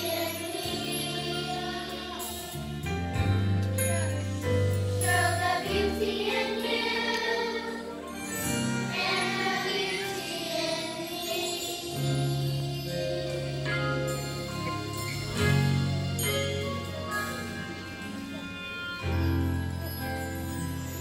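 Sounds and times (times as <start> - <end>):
children's choir singing: 0.0 - 3.2, 4.9 - 14.5
instrumental accompaniment: 0.0 - 21.0.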